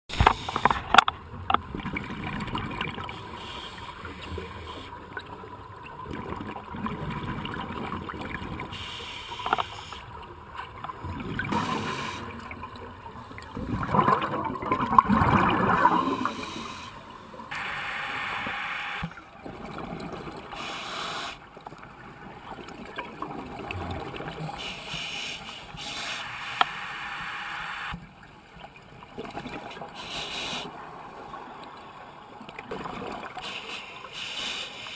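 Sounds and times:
underwater regulator bubbles gurgling: 0:00.1 - 0:27.8.

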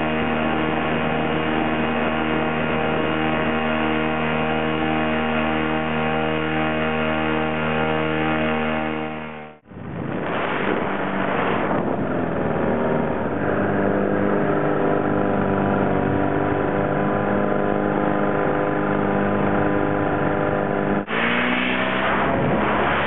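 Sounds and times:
paramotor engine and propeller: 0:00.0 - 0:23.0
wind noise on microphone: 0:09.6 - 0:21.3.

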